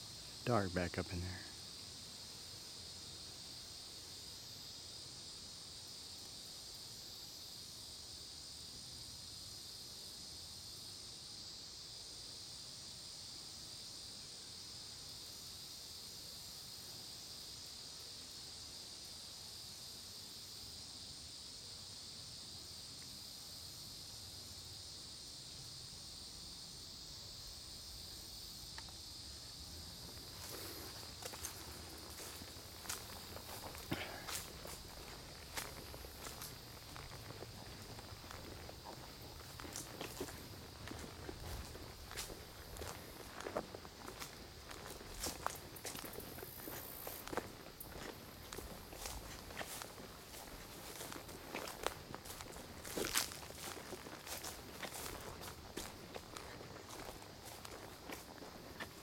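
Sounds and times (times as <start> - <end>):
insects chorus shrilling: 0.0 - 59.0
footsteps: 30.0 - 59.0.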